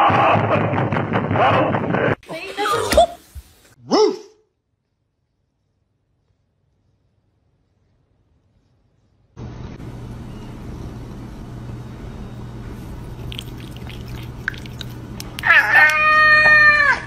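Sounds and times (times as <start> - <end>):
steady low hum: 5.2 - 15.5
cat meowing: 15.4 - 17.0.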